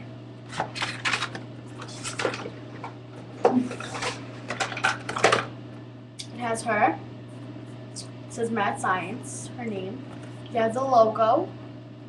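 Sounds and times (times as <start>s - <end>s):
packaging rustling and clicking: 0.5s - 2.9s.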